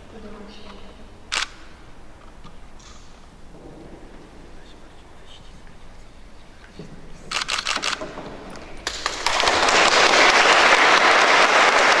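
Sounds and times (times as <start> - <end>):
crowd applauding: 8.8 - 12.0.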